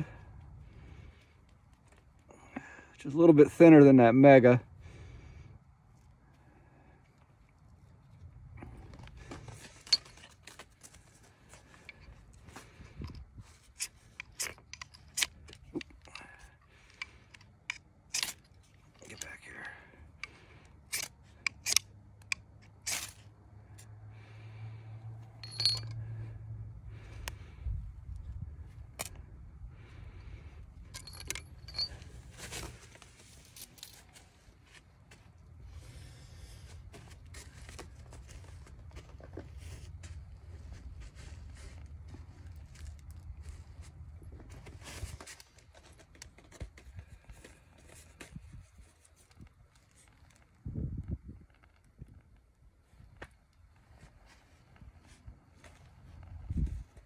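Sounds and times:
knife scraping ferrocerium rod: 0:20.9 - 0:21.9, 0:22.8 - 0:23.2
wind rumble on microphone: 0:27.4 - 0:29.8, 0:50.4 - 0:53.2, 0:56.1 - 0:57.0.

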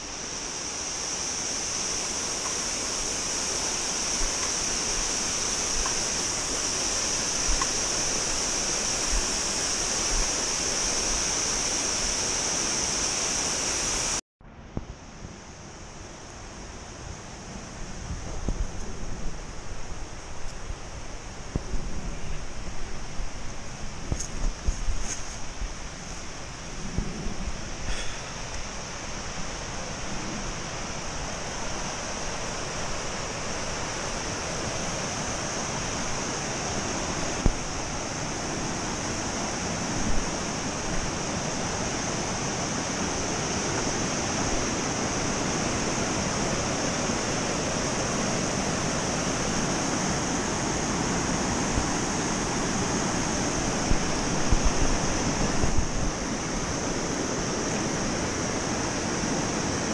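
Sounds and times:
river rapids rushing over rocks: 0:00.0 - 0:14.2, 0:27.5 - 0:59.9.

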